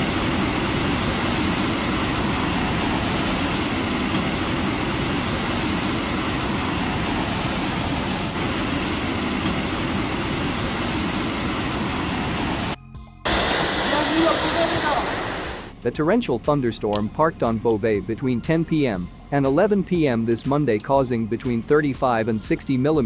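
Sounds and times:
floodwater rushing: 10.1s - 15.7s.

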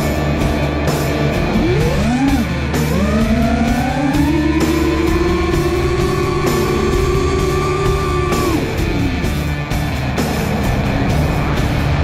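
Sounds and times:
rock music with electric guitar: 0.0s - 12.0s
high whine sliding down: 1.5s - 9.4s.

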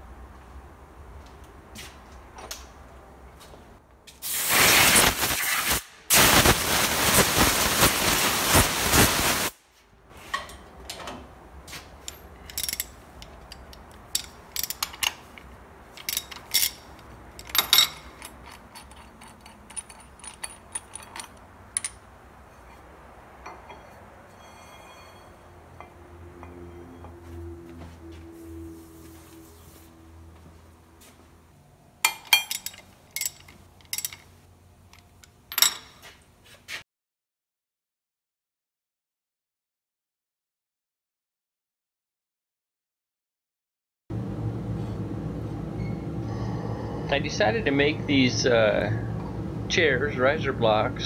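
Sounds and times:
metal parts clinking on steel table: 12.0s - 22.0s, 32.1s - 34.3s, 34.9s - 36.1s.

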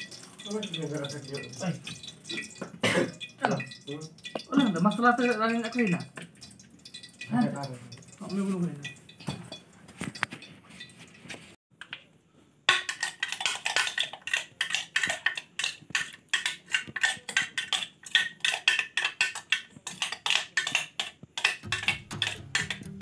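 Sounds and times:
metal spoon clinking in mug: 12.7s - 23.0s
music: 21.7s - 23.0s.

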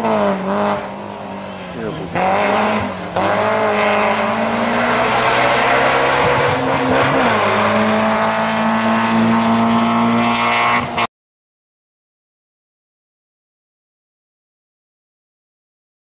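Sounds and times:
rally car engine at high revs: 0.0s - 11.1s.

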